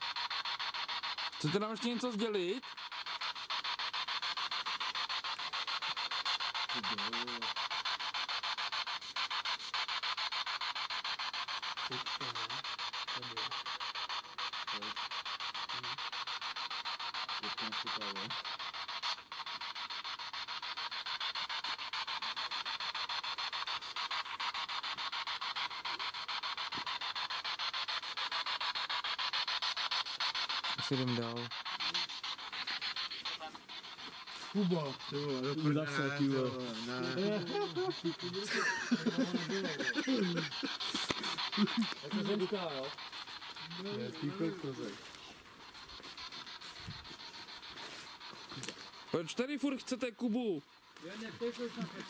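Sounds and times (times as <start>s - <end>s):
chopped radio static hiss: 0.0s - 52.0s
radio voices: 34.4s - 45.3s.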